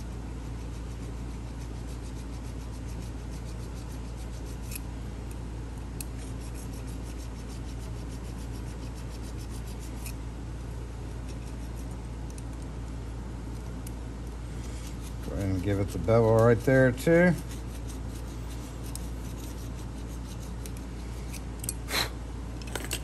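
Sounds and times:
steady low hum: 0.0s - 23.0s
needle file scraping brass: 14.5s - 21.5s.

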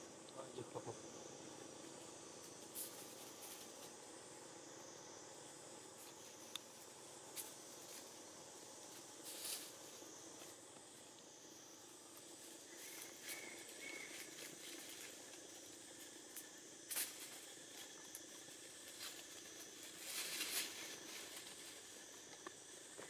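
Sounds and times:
rustles in dry leaves: 2.5s - 4.0s, 7.3s - 11.1s, 11.8s - 23.0s.

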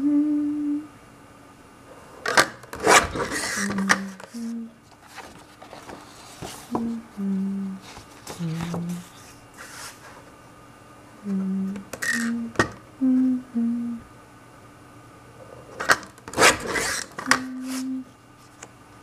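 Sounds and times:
person humming: 0.0s - 1.0s, 3.6s - 4.8s, 6.7s - 9.2s, 11.2s - 14.1s, 17.2s - 18.2s
card rustling scrape: 2.2s - 6.8s, 7.8s - 10.2s, 15.8s - 17.9s.

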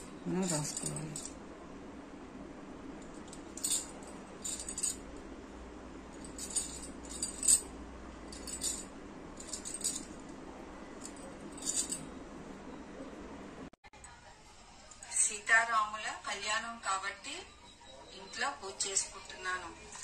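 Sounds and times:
bangles jingling: 0.0s - 1.4s, 3.2s - 5.1s, 6.2s - 10.3s, 11.0s - 12.2s
faint steady hum: 0.0s - 20.0s.

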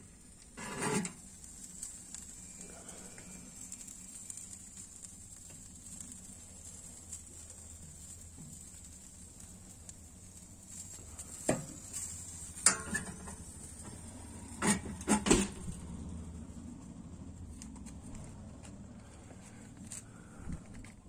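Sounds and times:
metal grill lid clanking: 11.4s - 15.6s.

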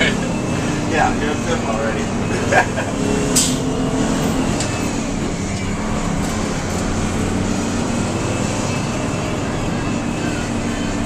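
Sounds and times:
bus engine running: 0.0s - 11.0s.

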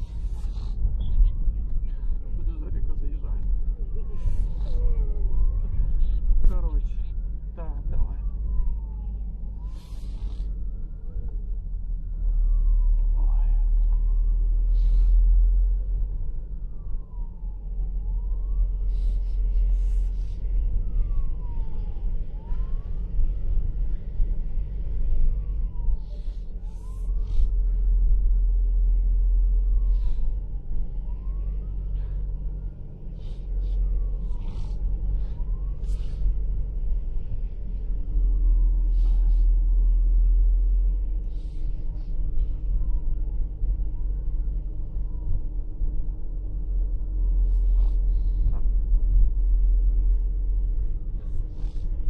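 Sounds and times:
vehicle rumble from inside cabin: 0.0s - 52.0s
wailing siren: 0.0s - 52.0s.

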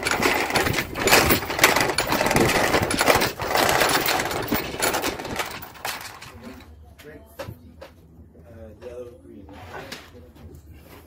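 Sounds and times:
irregular clattering: 0.0s - 6.7s.

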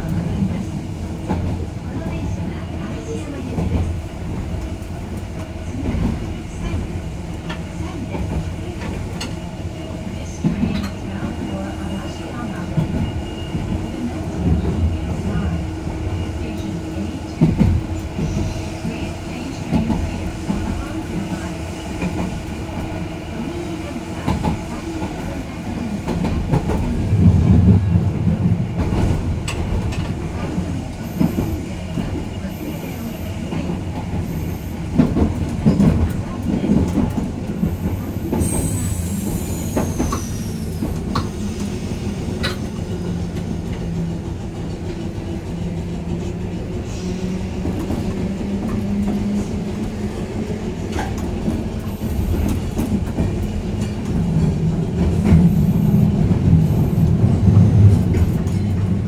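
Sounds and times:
tram rumble and hum: 0.0s - 59.0s.

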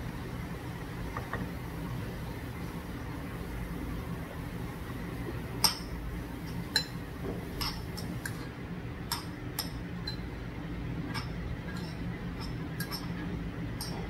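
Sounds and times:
steady low hum: 0.0s - 14.0s
metal spoon clinking stone bowl: 11.1s - 13.2s.

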